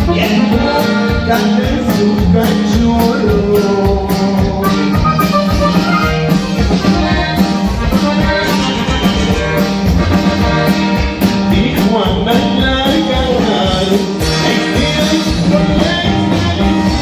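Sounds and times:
button accordion: 0.0 - 2.2, 3.3 - 13.0
drum kit beat: 0.0 - 17.0
guitar: 0.0 - 17.0.

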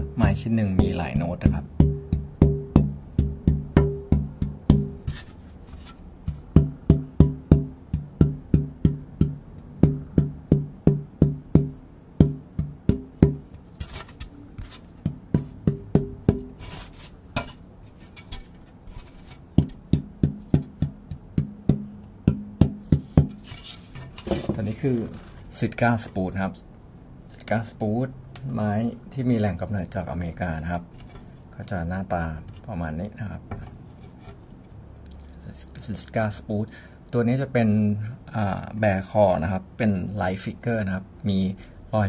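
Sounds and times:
taps on wooden soundboard ringing: 0.0 - 5.0, 15.1 - 16.6.

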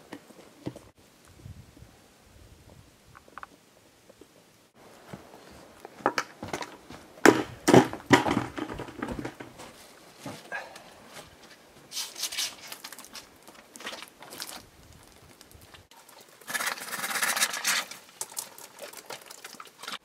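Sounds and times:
bag knocks on wooden boards: 7.2 - 9.6.

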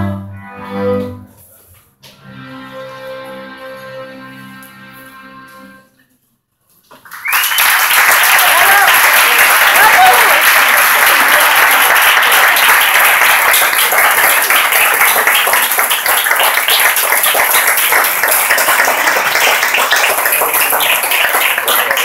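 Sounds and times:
audience applauding: 7.0 - 22.0.

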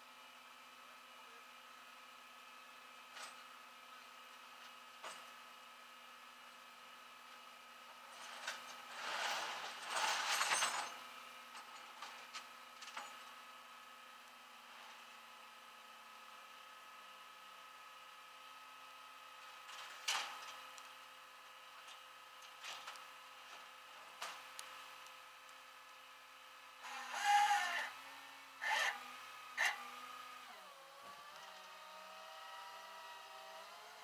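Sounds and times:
metal chains clanking: 8.3 - 11.0.

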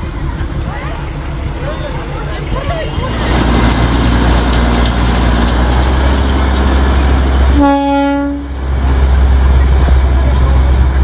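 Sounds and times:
diesel locomotive rumbling: 0.0 - 11.0
train horn blast: 7.5 - 8.6.

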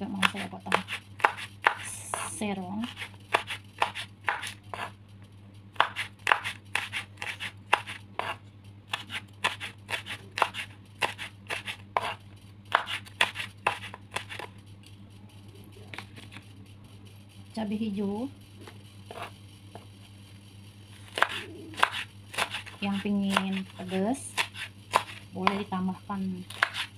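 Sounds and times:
knife slicing chilies: 0.1 - 5.0, 5.8 - 14.5, 21.0 - 25.7, 26.4 - 26.9.

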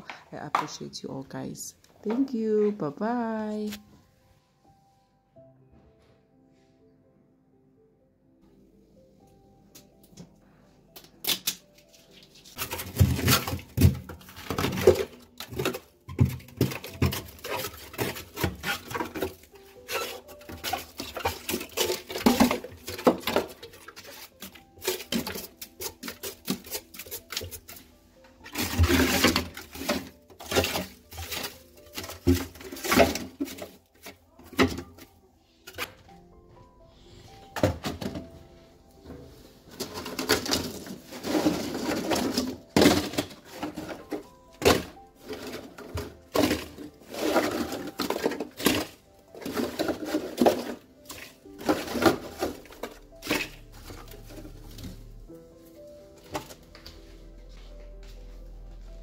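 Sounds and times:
quiet background music: 0.0 - 59.0
plastic scraper scraping ice: 12.6 - 27.9, 28.5 - 34.9, 39.8 - 55.0.

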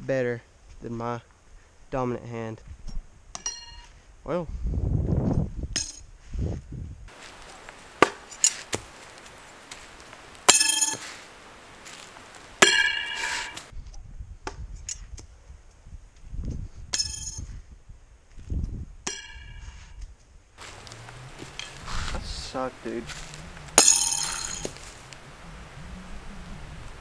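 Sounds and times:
throwing knives striking: 8.0 - 9.2, 10.4 - 11.2, 12.6 - 13.7, 20.6 - 22.2, 23.1 - 25.0
metallic ringing tone: 10.5 - 11.1, 12.6 - 13.6, 23.2 - 24.9.

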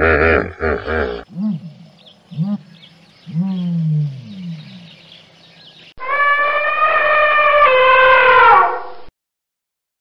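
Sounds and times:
elephant trumpeting: 6.0 - 8.8.

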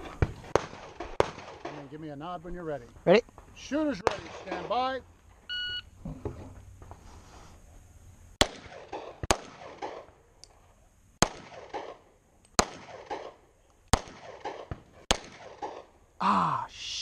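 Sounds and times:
pistol shots with echoes: 0.5 - 1.9, 4.0 - 4.7, 8.4 - 10.1, 11.2 - 12.0, 12.6 - 15.9.

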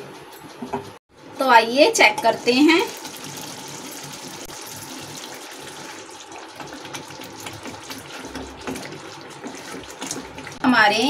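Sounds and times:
curry simmering and bubbling: 2.4 - 10.7
ladle stirring: 2.5 - 10.6.

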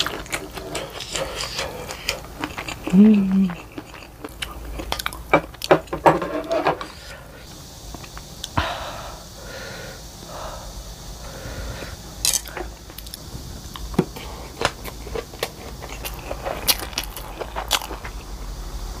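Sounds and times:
chewing and crunchy bites: 0.0 - 6.0, 12.2 - 18.6.

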